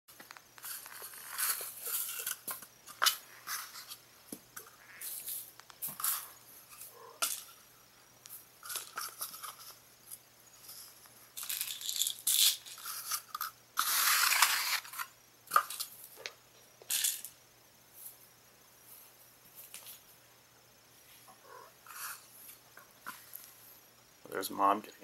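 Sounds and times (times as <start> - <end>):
toys rattling and rustling on carpet: 0.2 - 4.0, 8.6 - 15.0.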